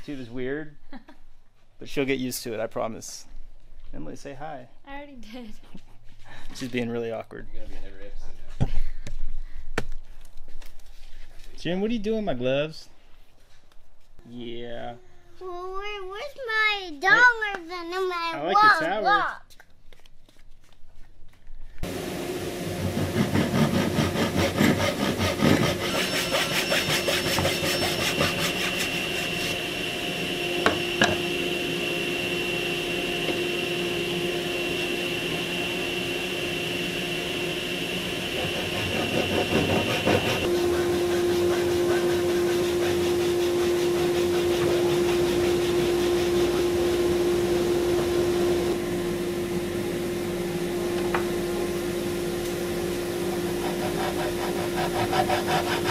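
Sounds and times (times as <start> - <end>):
hand saw cutting wood: 22.8 - 29.6, 38.2 - 46.7, 53.4 - 55.9.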